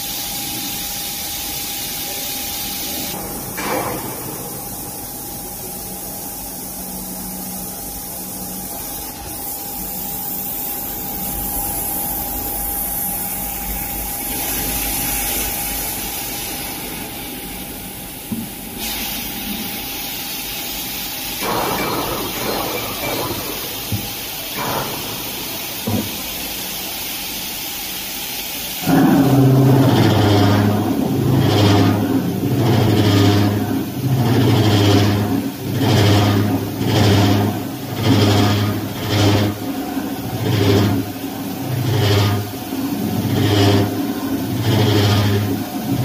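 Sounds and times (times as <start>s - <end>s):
coolant spray hiss: 0.0s - 46.0s
low machine hum: 2.9s - 46.0s
machine cutting noise: 28.8s - 39.6s, 41.7s - 46.0s.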